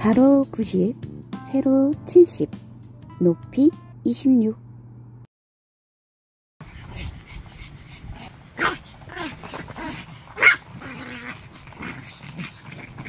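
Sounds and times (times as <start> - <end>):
small dogs yapping: 6.8 - 13.0.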